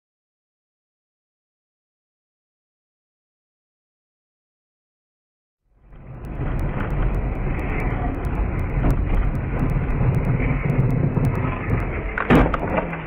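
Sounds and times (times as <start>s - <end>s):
car engine and tyre noise: 5.8s - 13.0s.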